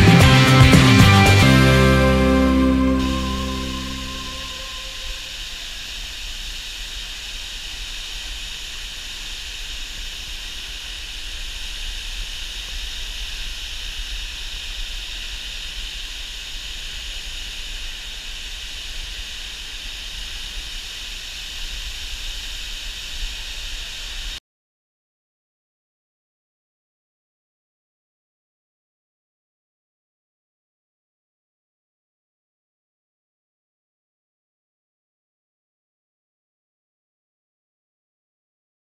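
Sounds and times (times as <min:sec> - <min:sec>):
waterfall rushing: 0:00.8 - 0:24.4.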